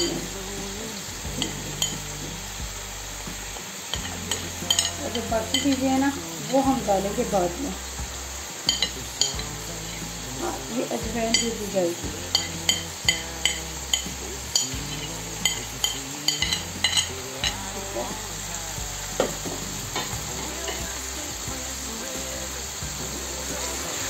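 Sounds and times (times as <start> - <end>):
chicken sizzling in frying pan: 0.0 - 24.0
spoon clinking on plate: 8.6 - 9.5, 12.3 - 17.7.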